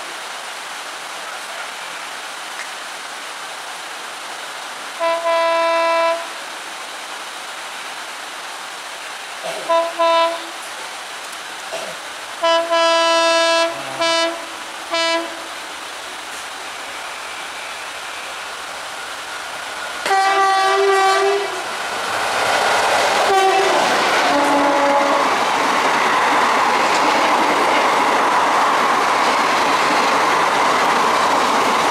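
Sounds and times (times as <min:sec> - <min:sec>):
heavy rain hiss: 0:00.0 - 0:31.9
train horn blasts: 0:05.0 - 0:06.4, 0:09.6 - 0:10.6, 0:12.4 - 0:15.5, 0:20.0 - 0:21.6, 0:23.2 - 0:25.3.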